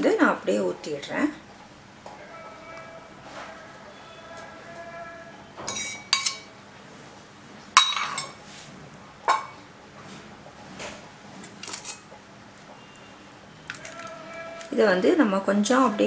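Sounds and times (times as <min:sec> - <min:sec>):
steel bowl spoon and plate clinking: 0:05.7 - 0:06.5, 0:07.8 - 0:08.4.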